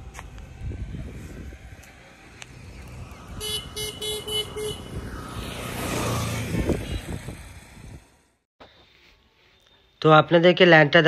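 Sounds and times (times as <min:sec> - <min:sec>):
motor vehicle passing: 0:00.0 - 0:08.4
vehicle horn toots: 0:03.4 - 0:05.6, 0:06.6 - 0:07.4.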